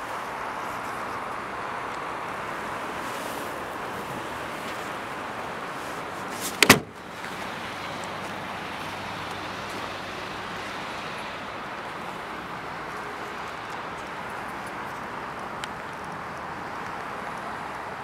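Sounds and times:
steady outdoor hiss: 0.0 - 18.0
car trunk lid slamming: 6.5 - 7.0.

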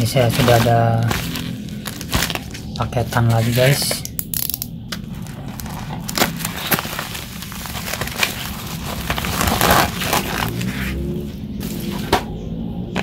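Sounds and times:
plastic mailer crinkling: 0.0 - 4.0, 4.9 - 11.0.

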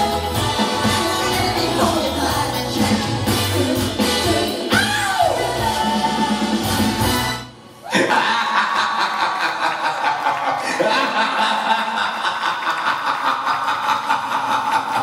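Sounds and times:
audience cheering: 7.9 - 13.6
audience clapping: 8.8 - 15.0.

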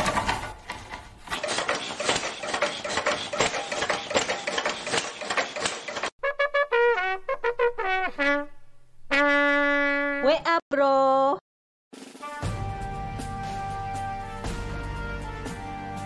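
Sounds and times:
film projector clattering: 0.0 - 6.1
brass fanfare: 6.2 - 10.0, 12.0 - 16.0.

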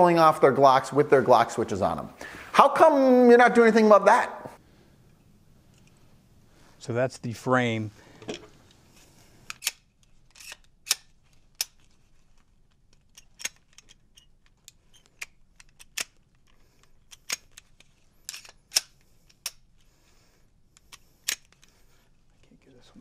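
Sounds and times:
pistol slide clicking: 9.5 - 11.8, 18.3 - 19.6, 20.8 - 21.6.

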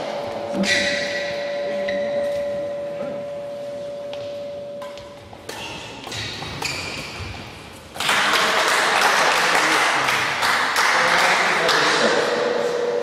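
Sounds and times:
shoes squeaking on court floor: 3.6 - 7.9
racket striking shuttlecock: 4.8 - 8.1.

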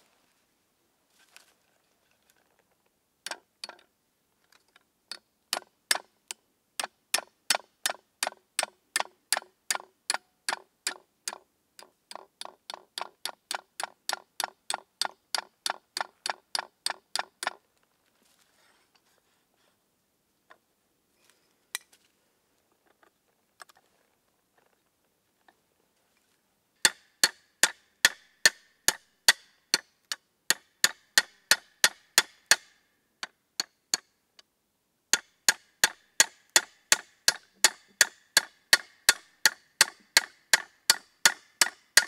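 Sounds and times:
hammer striking nail into wood: 26.8 - 29.9, 30.5 - 34.1, 35.2 - 42.0.

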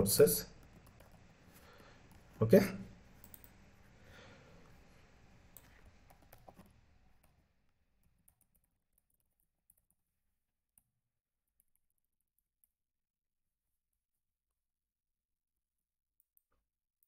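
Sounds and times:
computer keyboard clicks: 3.2 - 3.6.

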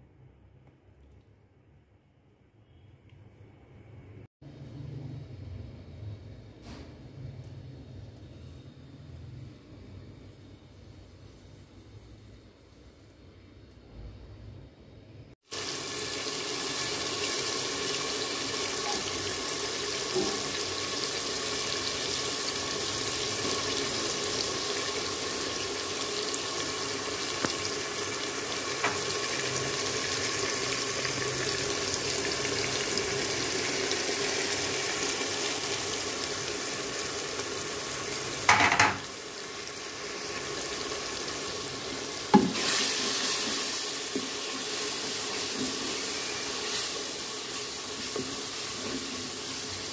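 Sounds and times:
spices sizzling in oil: 15.4 - 49.9.

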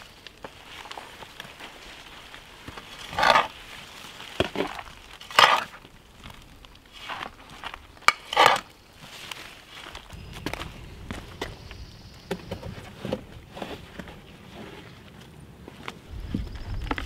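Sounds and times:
trowel scraping soil: 0.6 - 5.8, 6.9 - 10.0.

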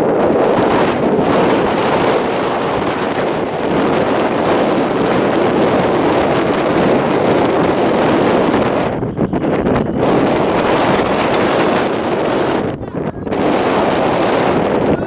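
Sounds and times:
wind blowing across microphone: 0.0 - 15.0.

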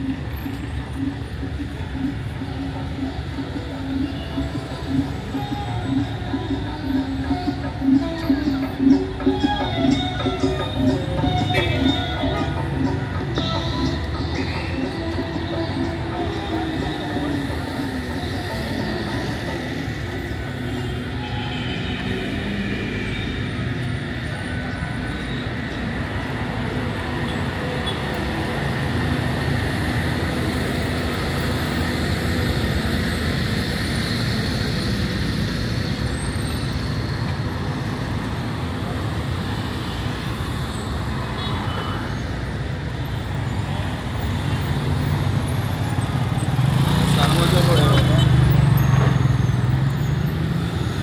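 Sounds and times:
road traffic rumble: 0.0 - 51.0.

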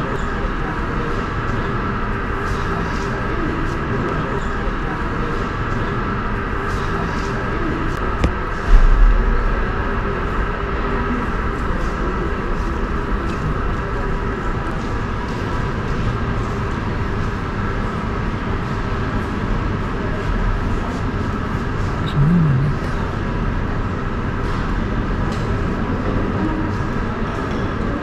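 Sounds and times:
rumbling background noise: 0.0 - 28.0.

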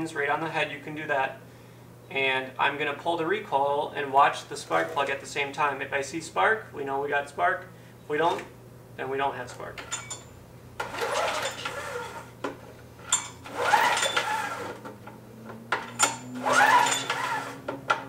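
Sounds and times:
recoil starter rope pull whirring: 9.9 - 18.0.

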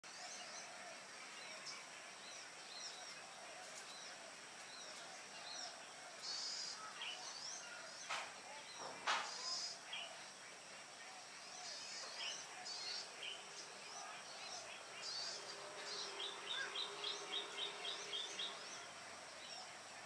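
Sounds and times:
outdoor hiss: 0.0 - 20.0
birds chirping and whistling: 11.3 - 19.9.

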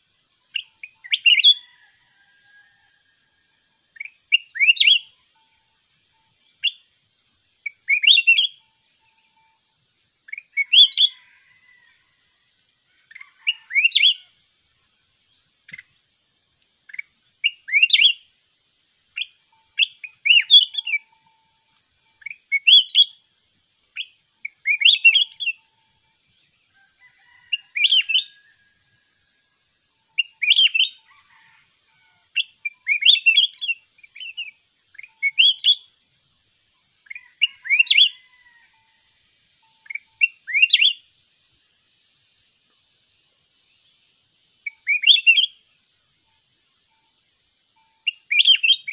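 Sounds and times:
bulbul singing: 0.0 - 1.8, 3.9 - 7.0, 7.6 - 9.6, 19.1 - 23.2, 23.9 - 25.7, 32.4 - 35.9, 44.6 - 45.6, 47.7 - 48.9.

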